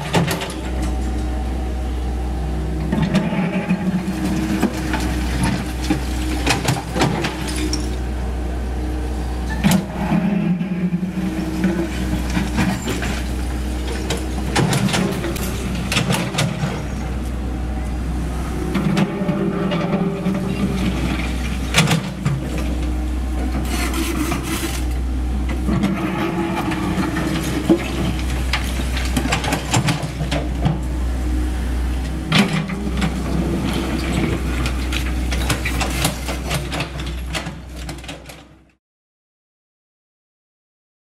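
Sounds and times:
excavator diesel engine running: 0:00.0 - 0:38.6
bucket scraping through rubble: 0:09.7 - 0:17.1, 0:18.8 - 0:22.8, 0:23.4 - 0:25.0, 0:25.6 - 0:30.6.

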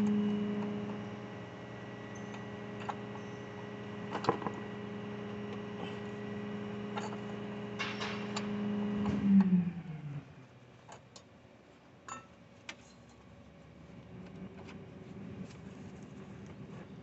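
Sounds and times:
motor humming: 0:00.0 - 0:10.3.

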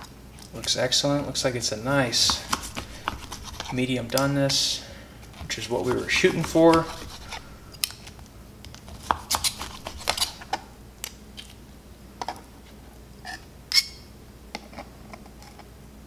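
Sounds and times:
knife and fork scraping board: 0:02.2 - 0:04.4, 0:05.4 - 0:07.7, 0:08.9 - 0:10.6.

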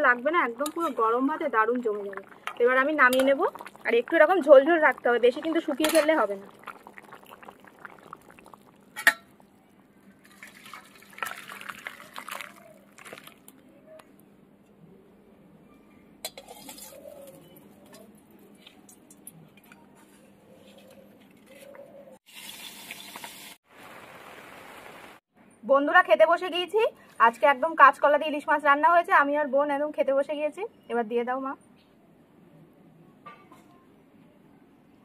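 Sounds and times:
curry bubbling in a pan: 0:00.2 - 0:09.0, 0:10.2 - 0:13.6.

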